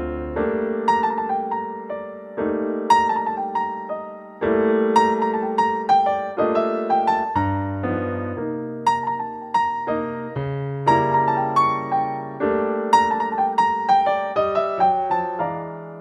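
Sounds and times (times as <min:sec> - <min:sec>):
held piano chords: 0:00.0 - 0:16.0.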